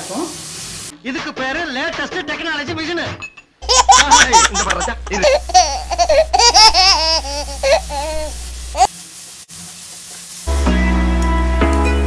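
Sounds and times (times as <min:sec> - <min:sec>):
high-pitched laughing voices: 0:03.6 - 0:08.9.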